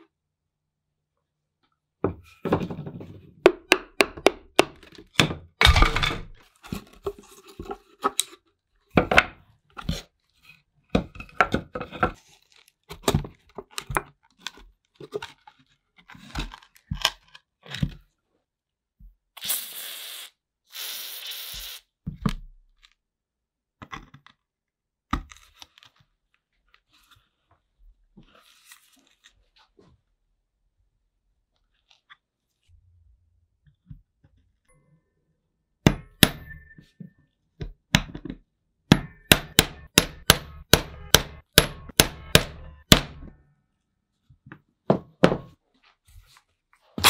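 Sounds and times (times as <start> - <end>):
short hissing bursts: 19.4 - 21.9.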